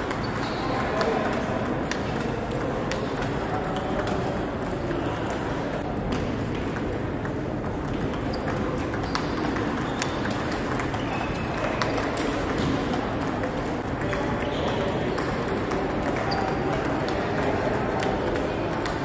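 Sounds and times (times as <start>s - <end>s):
ball bouncing on table: 6.1s - 13.3s.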